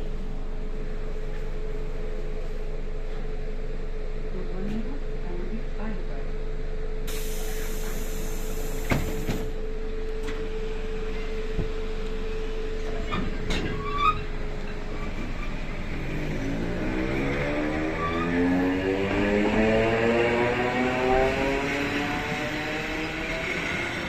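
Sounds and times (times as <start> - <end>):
electric train hum: 0.0 - 24.0
motor whine rising in pitch: 16.4 - 24.0.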